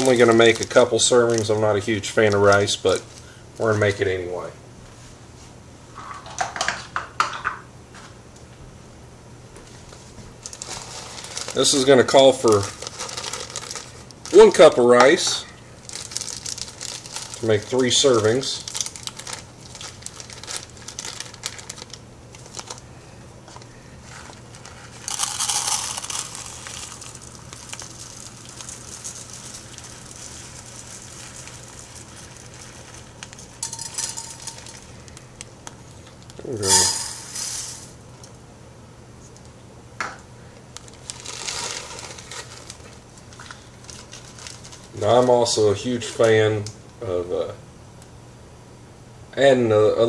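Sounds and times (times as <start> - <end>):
rice grains pouring: 0.0 - 3.1, 10.5 - 21.7, 24.2 - 35.1, 36.5 - 38.0, 40.9 - 45.2
plastic bag crinkling: 0.0 - 4.0, 10.4 - 22.9, 23.5 - 38.0, 40.7 - 45.6.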